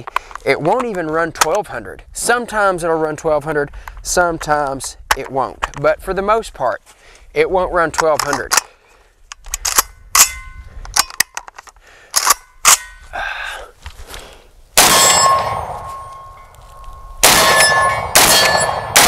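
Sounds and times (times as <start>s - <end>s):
shotgun being handled: 0.0s - 1.6s, 7.9s - 13.0s
loud shotgun shots: 14.8s - 16.0s, 17.2s - 19.0s.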